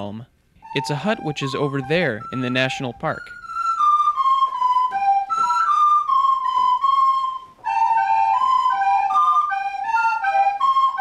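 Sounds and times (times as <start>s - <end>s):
recorder playing a melody: 0.0s - 11.0s.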